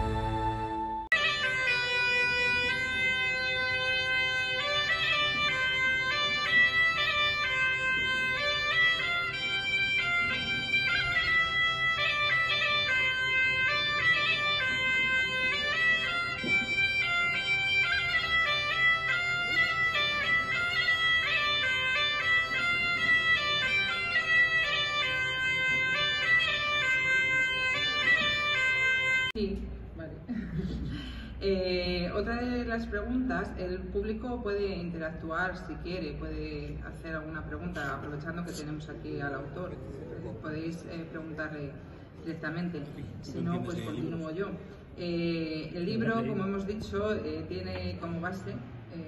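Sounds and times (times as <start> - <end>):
bagpipe melody over drone: 0.0 - 29.4.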